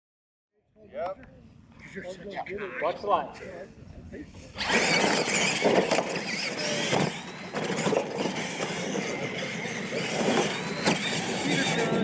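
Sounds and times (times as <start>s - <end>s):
faint motor whine: 3.5s - 12.0s
toy truck motors roaring: 4.5s - 12.0s
trucks landing knocks: 4.6s - 12.0s.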